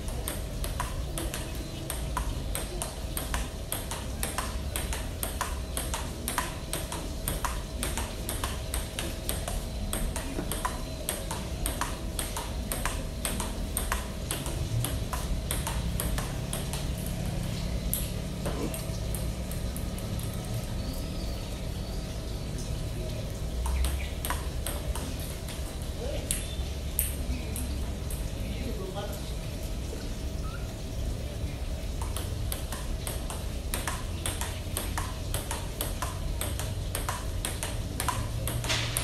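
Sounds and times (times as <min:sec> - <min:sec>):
ball bouncing on table: 0:00.0 - 0:20.3, 0:23.6 - 0:25.7, 0:32.0 - 0:39.0
ping pong ball hitting paddles: 0:00.0 - 0:20.5, 0:23.0 - 0:28.8, 0:31.9 - 0:39.0.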